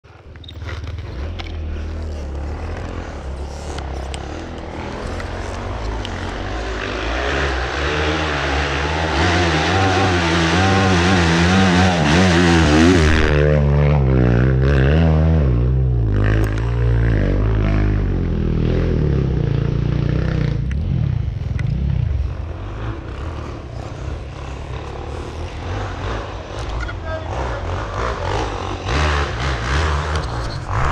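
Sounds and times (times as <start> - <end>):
steady rushing noise: 0.1 - 14.7, 19.3 - 26.6
dirt bike engine revving: 0.1 - 30.9.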